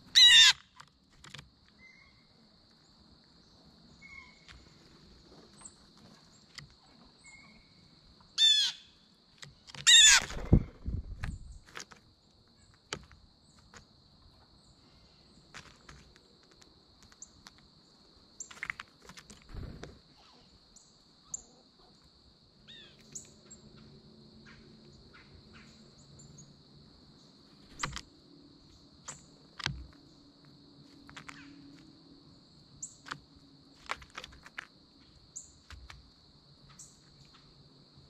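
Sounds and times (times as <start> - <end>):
high insect drone: 0.0 - 38.0
faint bird chirps: 1.7 - 4.8, 5.5 - 9.1, 19.5 - 22.1, 22.7 - 26.6.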